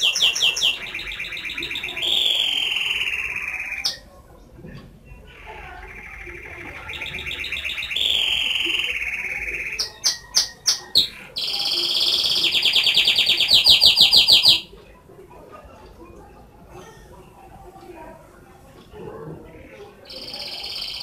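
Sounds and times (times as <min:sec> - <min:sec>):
canary singing trills: 0:00.0 - 0:04.4, 0:05.0 - 0:14.8, 0:19.4 - 0:21.0.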